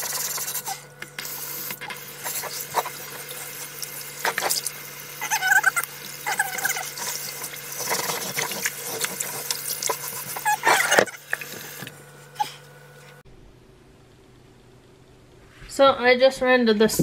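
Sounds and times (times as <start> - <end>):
running tap water: 0.0 - 11.9.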